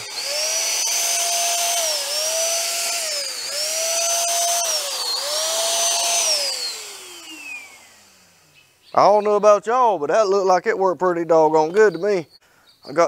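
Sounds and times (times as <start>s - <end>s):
paint sprayer motor whine: 0.0s - 9.4s.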